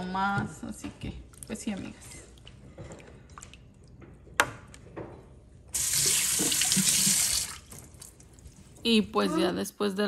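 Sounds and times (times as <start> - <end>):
faucet running into sink: 5.8 - 7.9.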